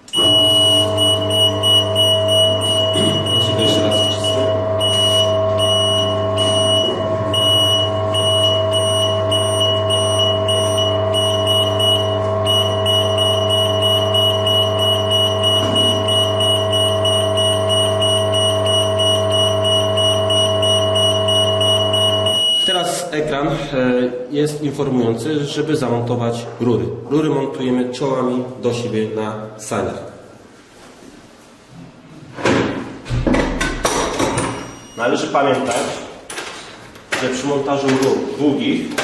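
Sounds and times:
hydraulic power unit humming: 0.0s - 23.9s
high-pitched warning buzzer: 0.1s - 23.1s.

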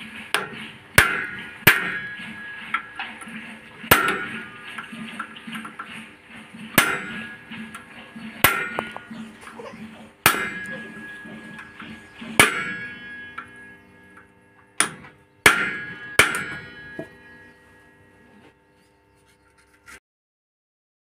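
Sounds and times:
hammer striking ringing metal: 0.3s - 3.0s, 3.9s - 4.6s, 6.8s - 7.4s, 8.4s - 18.4s.

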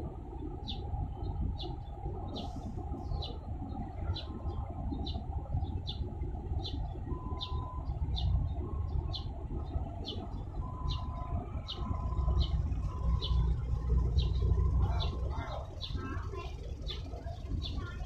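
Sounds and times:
low rumble: 0.0s - 18.0s
bird chirping: 6.6s - 8.4s, 10.0s - 18.0s.

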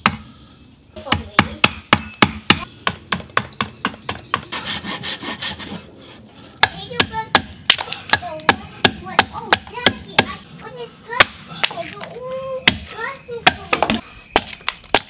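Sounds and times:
hatchet chopping wood: 0.0s - 0.3s, 1.1s - 4.5s, 6.6s - 10.4s, 11.2s - 11.8s, 12.6s - 15.0s
rubbing and scraping on wood: 4.3s - 7.0s.

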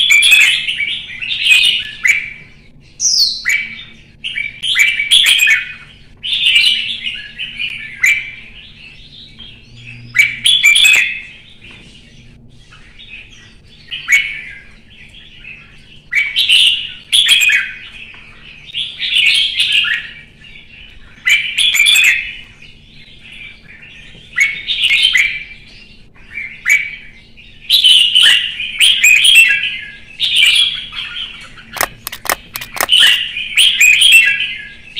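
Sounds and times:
bird warbling song: 0.0s - 34.9s
sharp clicks: 31.8s - 33.2s.

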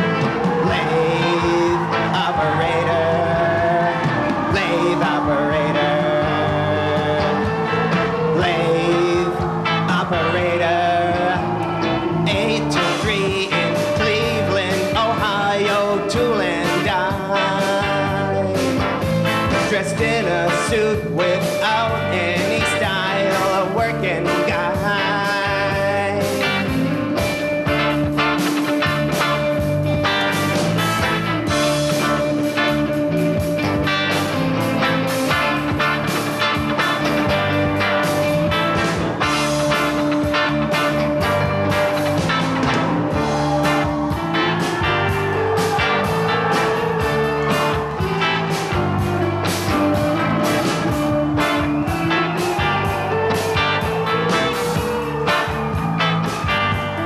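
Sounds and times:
pop song instrumental: 0.0s - 57.0s.

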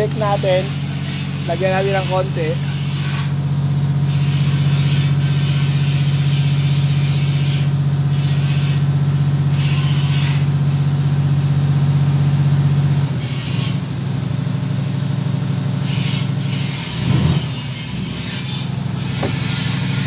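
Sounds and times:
truck engine idling: 0.0s - 13.2s, 17.7s - 20.0s.

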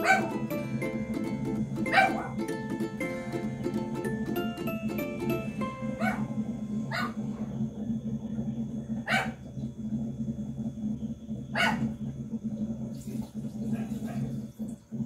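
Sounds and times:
dog barking: 0.0s - 0.3s, 1.9s - 2.4s, 6.0s - 6.3s, 6.9s - 7.2s, 9.0s - 9.4s, 11.5s - 11.9s, 13.7s - 14.3s
steady low hum: 0.0s - 15.0s.

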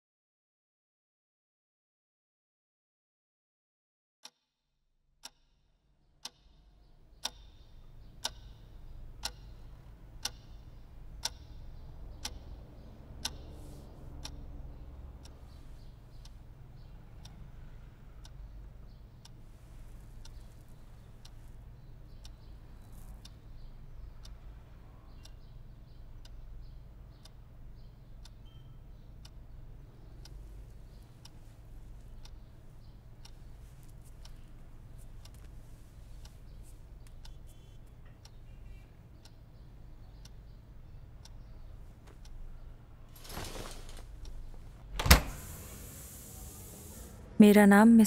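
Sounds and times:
low room hum: 5.7s - 48.0s
clock ticking: 7.2s - 13.6s, 20.1s - 43.1s.

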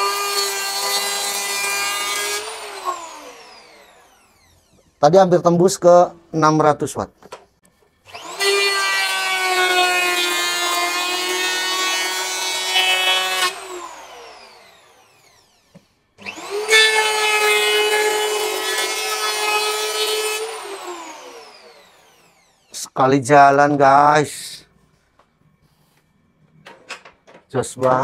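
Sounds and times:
electric planer cutting wood: 0.0s - 4.9s, 8.1s - 22.7s.

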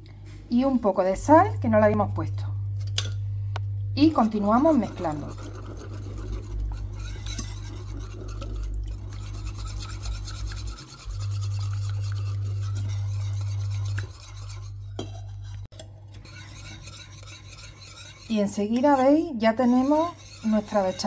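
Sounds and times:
steady low hum: 0.0s - 21.0s
whisk scraping sauce in pan: 4.3s - 21.0s.

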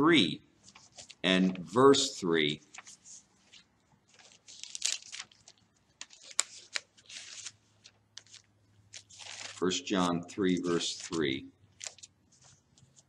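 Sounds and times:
pages being leafed through: 0.6s - 1.7s, 2.7s - 9.7s, 10.6s - 13.0s.

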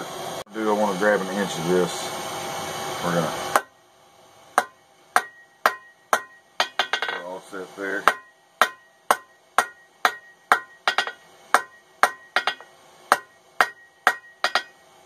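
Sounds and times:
hammer striking steel on anvil: 3.5s - 3.7s, 4.6s - 7.4s, 8.0s - 14.9s.

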